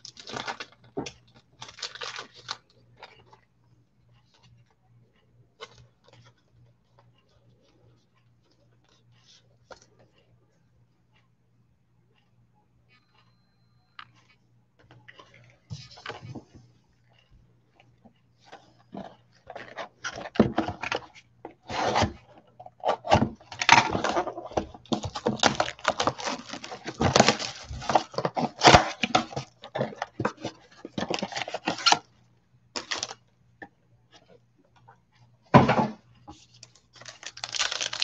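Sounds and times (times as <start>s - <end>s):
foil pack crinkling and tearing: 0.0s - 0.8s, 1.6s - 2.7s, 23.5s - 29.5s, 32.8s - 33.2s, 36.7s - 38.0s
faint low hum: 0.0s - 38.0s
cardboard tray rustling and clacking: 18.9s - 32.0s.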